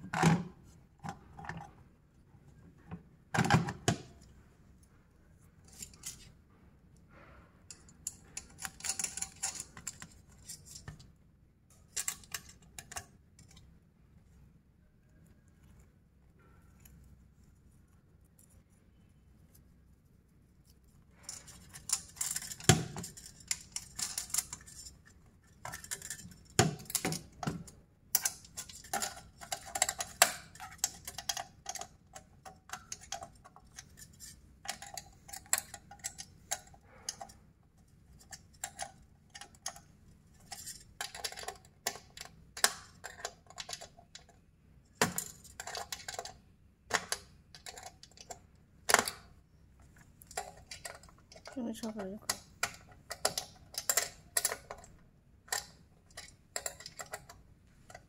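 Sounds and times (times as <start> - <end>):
clicks and taps of parts: 7.1 - 11.1, 21.2 - 37.4, 38.2 - 58.0.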